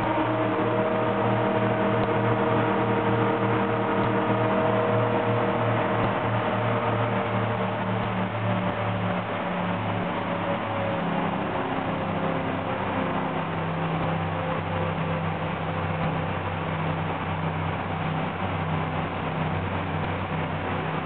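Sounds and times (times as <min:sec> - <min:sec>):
boat engines running: 0:00.0 - 0:21.0
wind and water rushing: 0:00.0 - 0:21.0.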